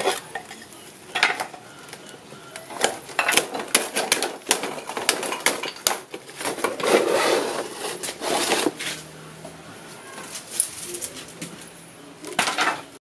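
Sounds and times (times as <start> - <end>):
wood tearing and scraping: 2.8 - 9.0.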